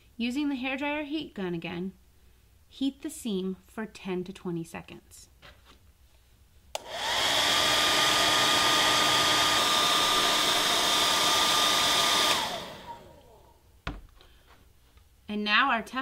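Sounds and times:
hair dryer blowing: 6.8 - 13.6.

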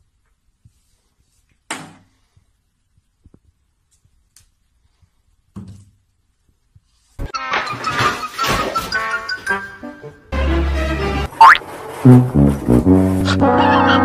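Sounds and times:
plastic bottles knocked over: 7.3 - 9.3.

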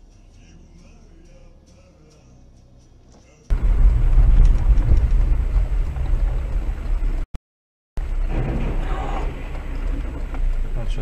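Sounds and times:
car engine rumble: 0.0 - 7.3, 8.0 - 11.0
road noise: 0.0 - 7.3, 8.0 - 11.0.

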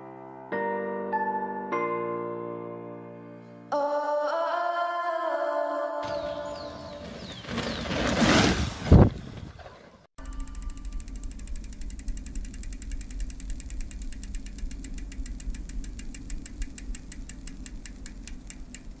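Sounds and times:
low steady hum: 10.2 - 19.0
rapid mechanical ticking: 10.2 - 19.0.

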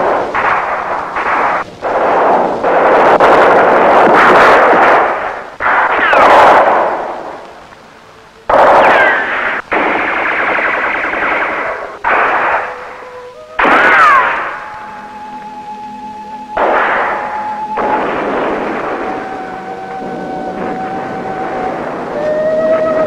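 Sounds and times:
automatic gunfire: 0.0 - 7.1, 8.5 - 12.8
falling whine: 0.0 - 23.0.

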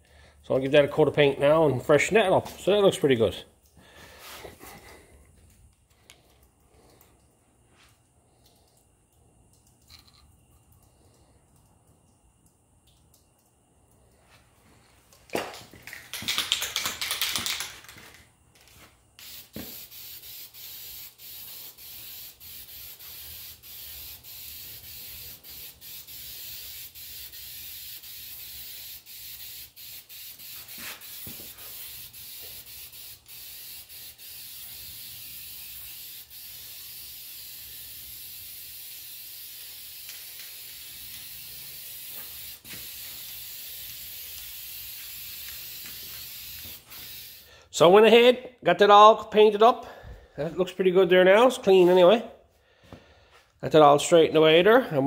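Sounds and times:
spray can hissing: 15.9 - 18.2, 19.2 - 47.5.

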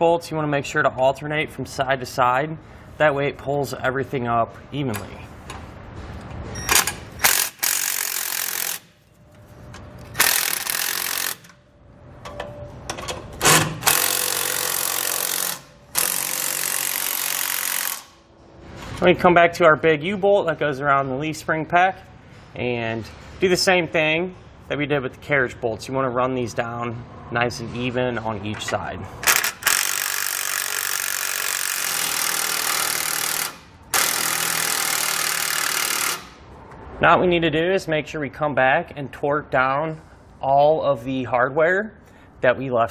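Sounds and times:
cordless impact wrench hammering: 6.7 - 8.9, 10.1 - 11.6, 13.4 - 18.2, 29.2 - 36.4.

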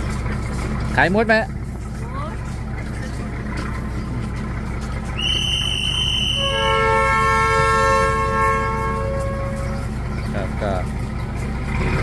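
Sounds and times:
idling train rumble: 0.0 - 12.0
high whistle blast: 5.2 - 9.8
train air horn chord: 6.0 - 9.9.

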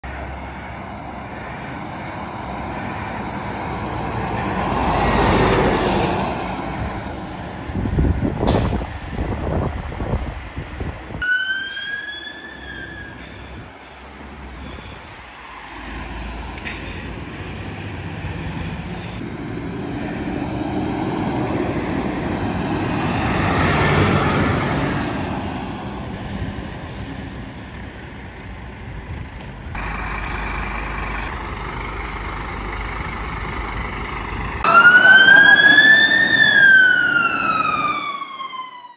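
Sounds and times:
fire engine driving past: 0.0 - 38.9
electronic siren tone sweeping: 34.6 - 38.9.

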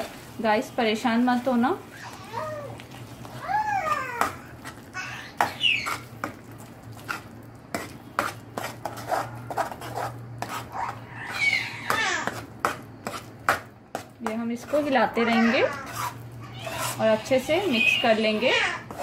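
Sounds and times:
baby squealing: 5.0 - 6.0, 10.7 - 12.3, 15.2 - 19.0
ladle scraping metal pot: 14.6 - 19.0.

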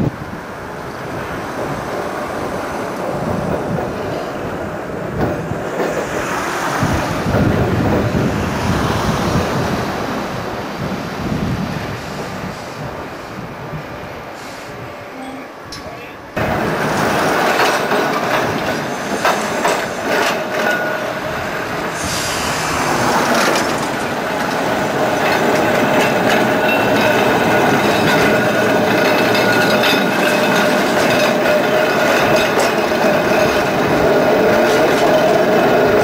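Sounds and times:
tram wheels rolling on rails: 0.0 - 36.0
clicks over rail joints: 15.7 - 21.6, 23.0 - 36.0
high whine of wheels and motors: 22.0 - 25.0.

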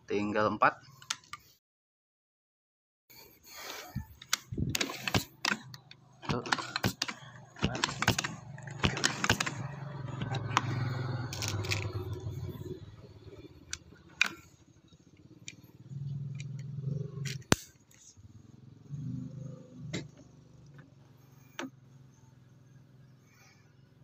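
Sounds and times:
air rifle handling clicks and rattles: 4.0 - 12.2, 13.6 - 14.5.

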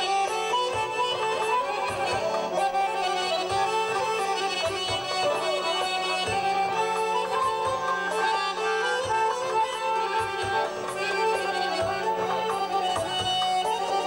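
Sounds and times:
button accordions playing melody: 0.0 - 14.0
low thumps on the beat: 0.0 - 14.0.

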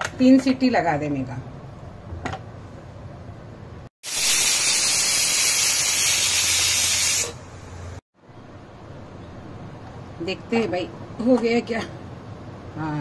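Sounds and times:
pressure cooker whistle hissing: 4.0 - 7.5.

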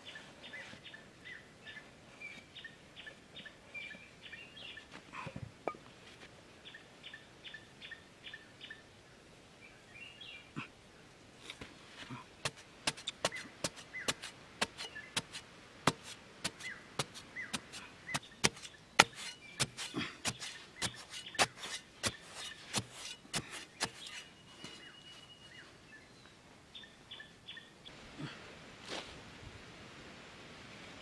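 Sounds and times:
metal blade chopping into soil: 12.4 - 24.3
soft scraping: 18.4 - 25.0.

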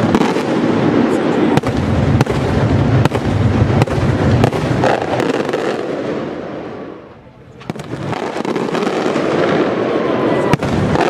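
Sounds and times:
firework barrage rumble: 0.0 - 11.0.

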